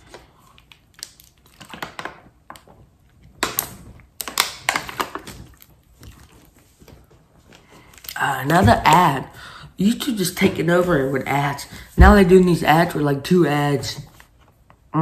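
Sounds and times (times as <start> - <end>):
plastic bottle crinkling: 0.0 - 9.2.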